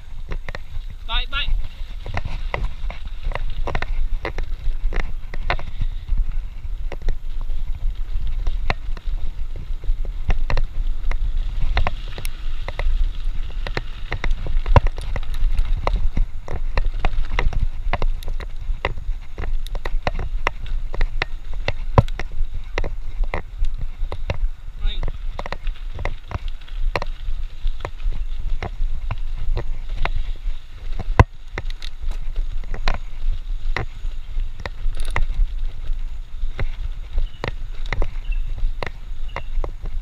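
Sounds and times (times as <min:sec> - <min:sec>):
bike rattling and knocking: 0:00.0 - 0:40.0
rumble of wind and tyres: 0:00.0 - 0:40.0.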